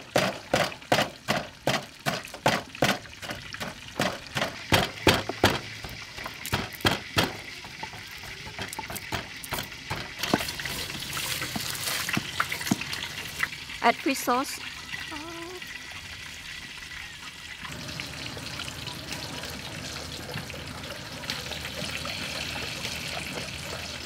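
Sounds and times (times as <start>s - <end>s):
pestle pounding in a clay mortar: 0.0s - 13.0s.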